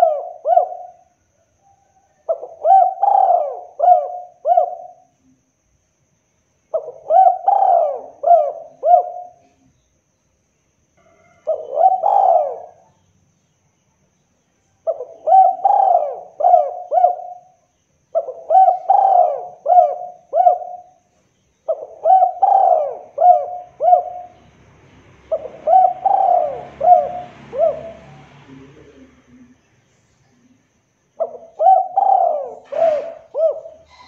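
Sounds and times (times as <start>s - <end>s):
dove cooing: 0.0s - 5.1s, 6.7s - 9.6s, 11.2s - 13.0s, 14.8s - 24.5s, 25.3s - 29.6s, 31.2s - 34.0s.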